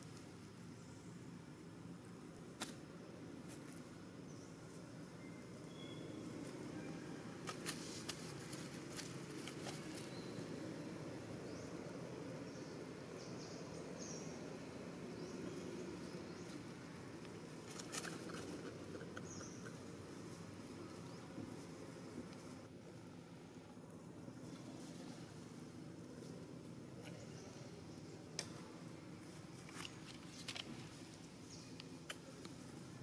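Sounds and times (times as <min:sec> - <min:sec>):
low outdoor hiss: 0:00.0 - 0:33.0
dry leaves crackling: 0:07.4 - 0:10.3.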